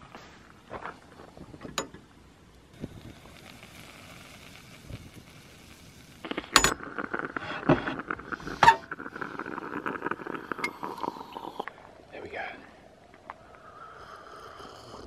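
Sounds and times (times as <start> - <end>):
coffee pouring: 2.8 - 11.9.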